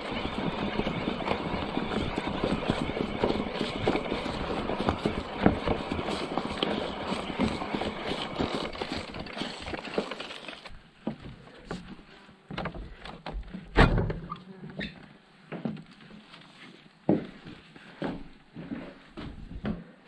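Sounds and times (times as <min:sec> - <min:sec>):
bike rattling over rough track: 0:00.0 - 0:10.8.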